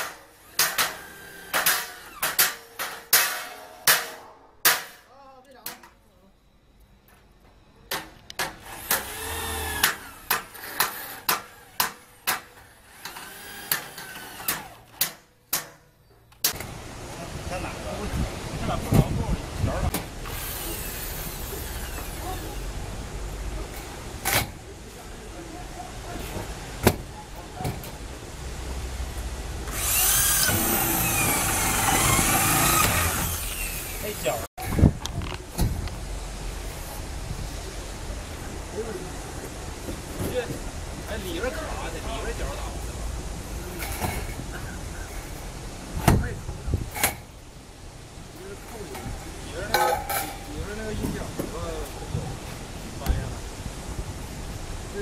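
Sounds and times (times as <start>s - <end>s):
power drill whining: 12.9s - 14.9s, 20.2s - 22.3s, 29.7s - 34.4s.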